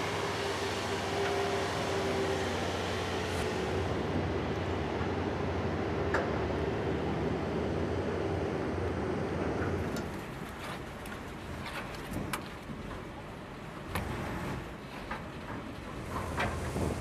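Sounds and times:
boat engines droning: 0.0s - 11.5s.

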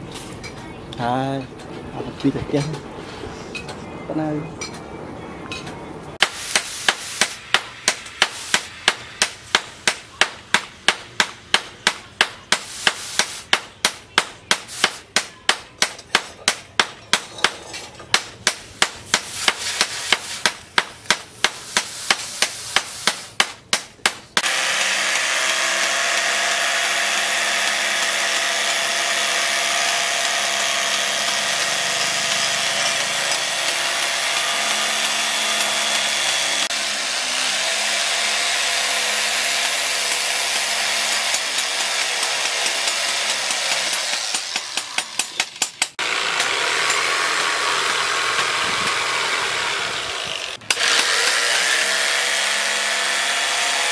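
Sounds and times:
hammer strikes: 6.2s - 36.9s, 37.8s - 47.2s
electric jigsaw cutting wood: 24.4s - 53.9s.

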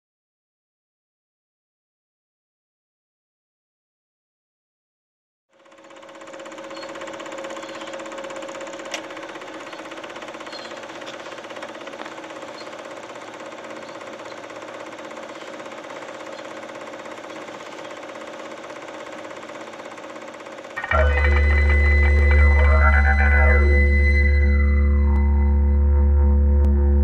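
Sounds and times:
film projector whirring: 5.5s - 24.4s
film-advance mechanism clatter: 5.6s - 20.9s.

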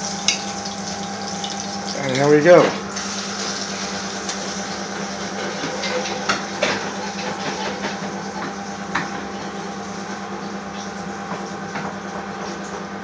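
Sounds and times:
low hum with hiss: 0.0s - 6.6s.

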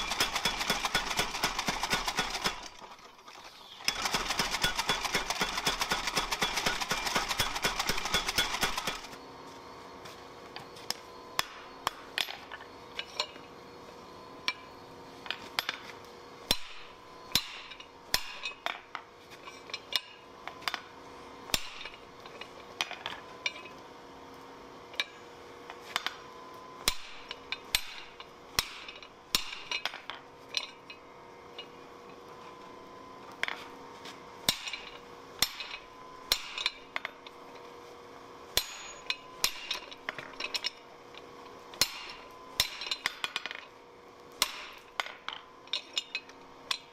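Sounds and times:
power hammer pounding steel: 0.0s - 3.0s, 3.8s - 9.1s, 38.6s - 39.9s, 44.4s - 44.9s
metal strikes on hot steel: 16.5s - 18.8s, 34.5s - 36.8s, 38.5s - 39.9s, 41.8s - 43.2s, 44.4s - 45.1s.

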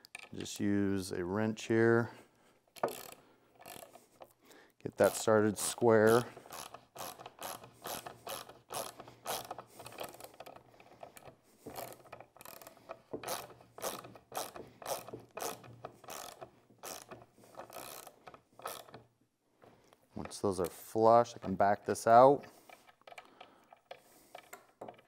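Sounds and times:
socket ratchet clicking: 2.7s - 4.4s, 5.0s - 19.1s.

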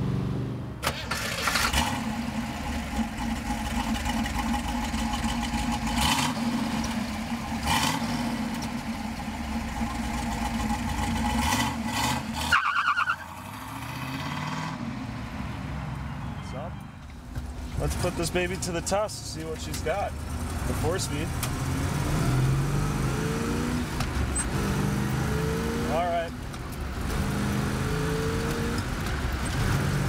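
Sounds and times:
car engine revving: 1.1s - 12.6s, 20.2s - 30.0s.

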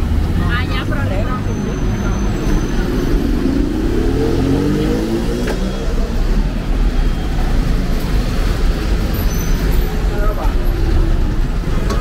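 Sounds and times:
rumble of passing cars: 0.0s - 12.0s
vehicle engine speeding up: 1.4s - 6.4s.

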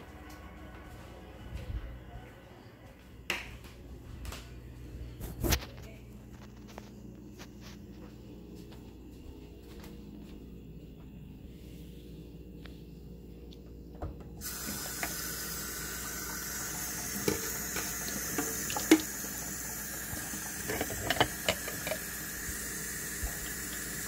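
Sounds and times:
tap water running into sink: 14.4s - 24.0s.

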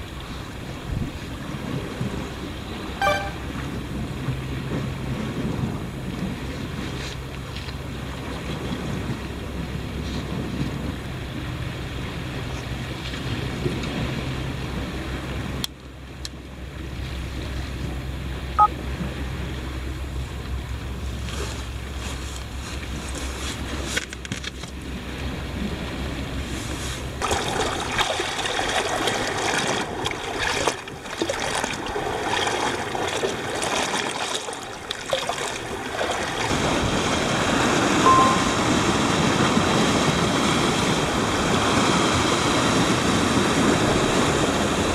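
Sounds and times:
wind rumbling on microphone: 0.0s - 44.9s
waves washing on rocky shore: 20.7s - 44.9s.

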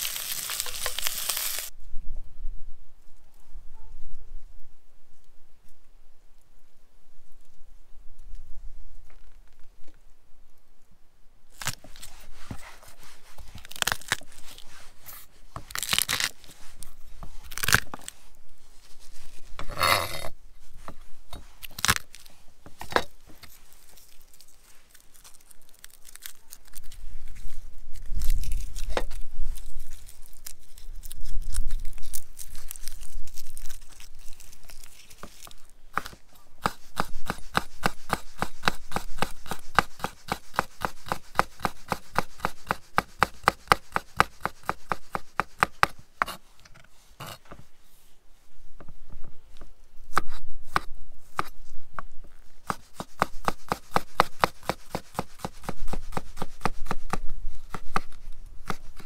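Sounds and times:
garlic skins rustling and tearing: 0.0s - 1.7s, 11.5s - 19.6s, 20.9s - 45.9s
knife chopping on wooden board: 36.0s - 46.4s, 52.7s - 59.0s.

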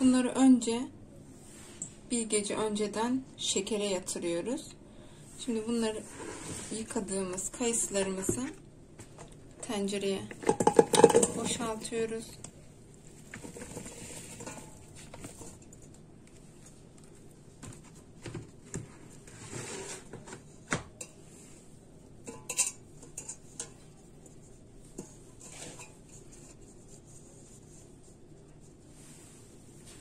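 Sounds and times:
fruit rustling and thudding in pot: 10.3s - 11.9s, 13.1s - 16.9s
knocks against metal pot: 10.4s - 11.6s.

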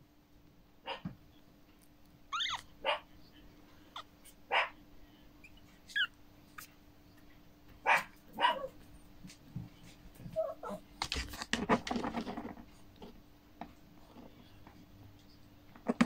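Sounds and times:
puppies squeaking and whimpering: 2.3s - 2.7s, 5.4s - 6.7s.

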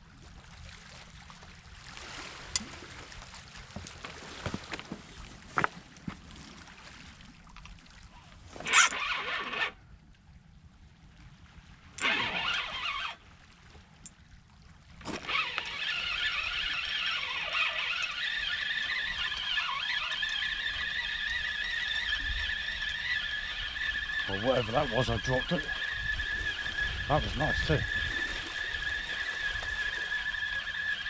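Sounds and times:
fishing reel winding: 8.6s - 9.8s, 12.0s - 13.2s, 15.1s - 31.0s.

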